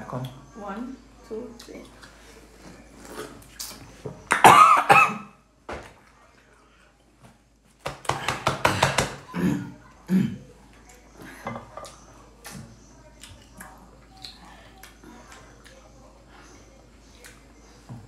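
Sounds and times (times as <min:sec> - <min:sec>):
people coughing and sputtering: 0:04.3 - 0:05.4, 0:08.3 - 0:10.6.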